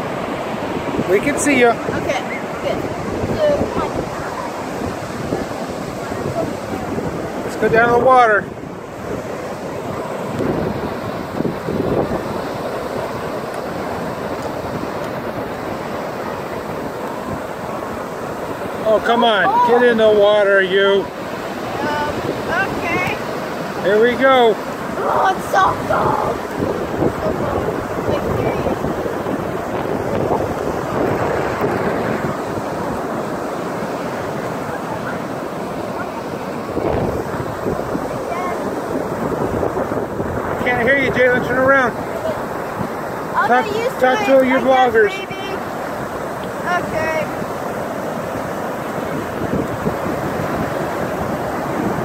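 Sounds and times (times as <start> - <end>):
ocean surf rushing: 0.0 - 52.0
wind buffeting microphone: 0.0 - 52.0.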